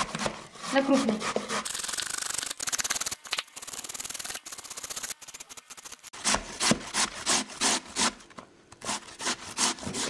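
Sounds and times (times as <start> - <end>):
zucchini grated on metal grater: 0.0 - 8.2.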